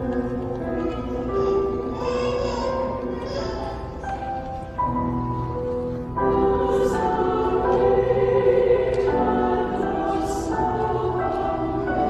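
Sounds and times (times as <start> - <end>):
choir singing in harmony: 0.0 - 12.0.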